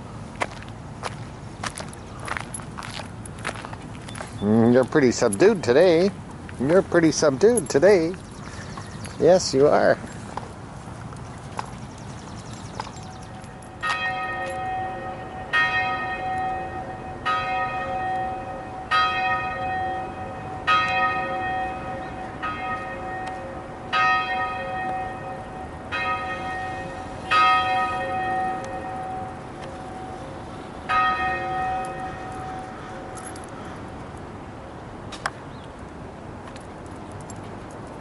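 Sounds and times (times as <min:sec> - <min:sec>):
church bell tolling: 0:13.3 - 0:33.5.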